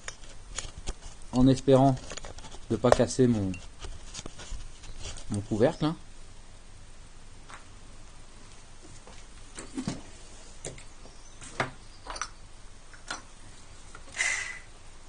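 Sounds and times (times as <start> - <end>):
short hiss: 14.1 - 14.7.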